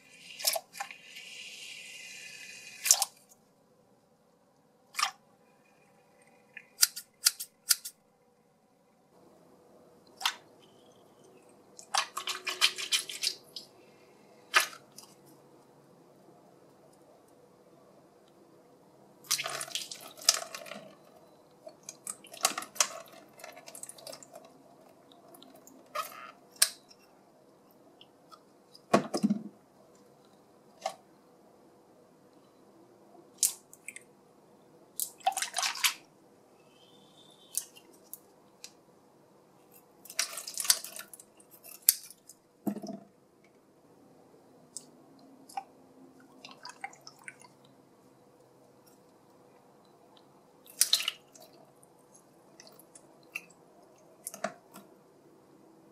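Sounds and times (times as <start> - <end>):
wet squishing: 4.9 - 5.2, 11.6 - 15.3, 19.2 - 27.0, 35.0 - 36.1, 39.8 - 42.8, 44.7 - 47.7, 48.8 - 55.0.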